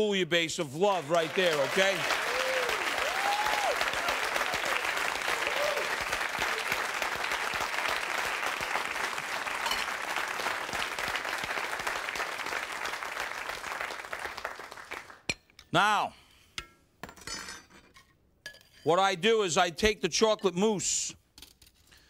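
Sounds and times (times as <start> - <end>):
audience applauding: 0.9 - 15.2.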